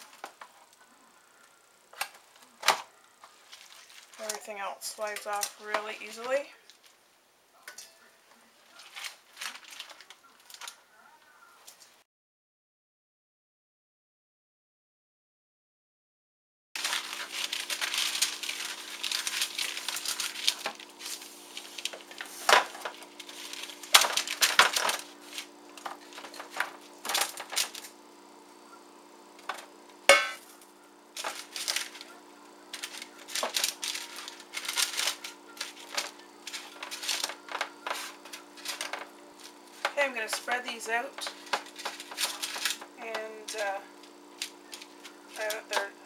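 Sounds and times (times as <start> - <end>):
parchment paper crinkling: 3.2 - 7.0, 8.4 - 11.8, 16.8 - 28.3, 29.4 - 46.0
steady low hum: 16.8 - 46.0.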